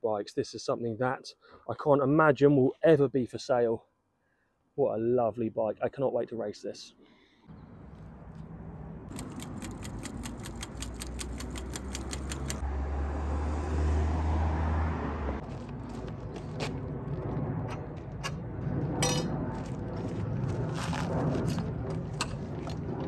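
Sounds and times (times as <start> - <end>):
vehicle engine rumble: 7.5 - 23.0
fast even clicking: 9.1 - 12.6.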